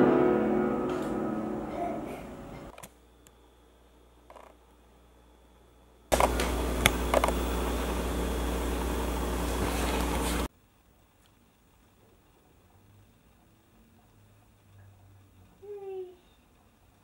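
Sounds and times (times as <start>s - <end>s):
machine whirring: 6.1s - 10.5s.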